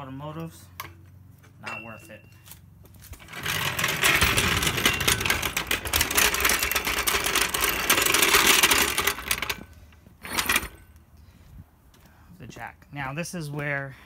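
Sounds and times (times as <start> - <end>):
floor jack rattling on paving: 3.0 - 10.9.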